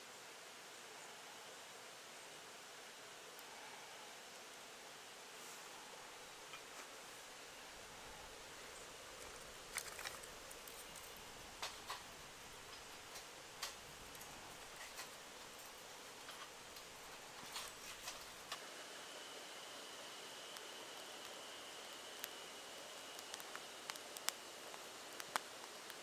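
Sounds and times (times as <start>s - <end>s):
kindling fire crackling: 5.3s - 26.0s.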